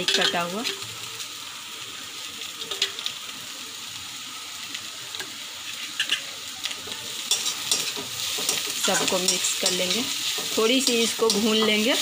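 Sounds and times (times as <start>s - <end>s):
vegetables sizzling in oil: 0.0s - 12.0s
spoon clicking against metal pan: 7.3s - 11.8s.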